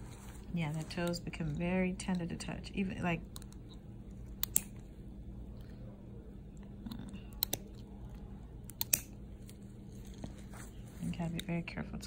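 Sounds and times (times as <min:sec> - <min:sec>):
nail nippers snipping: 0:04.4 - 0:04.8, 0:08.7 - 0:09.1.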